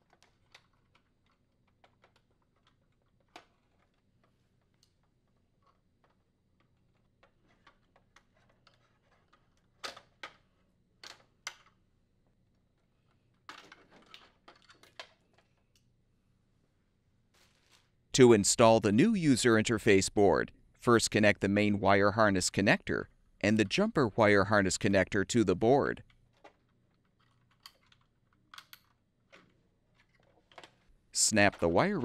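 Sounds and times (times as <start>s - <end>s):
plastic clatter and rattling: 0.0s - 11.8s, 13.0s - 15.6s, 26.2s - 30.9s.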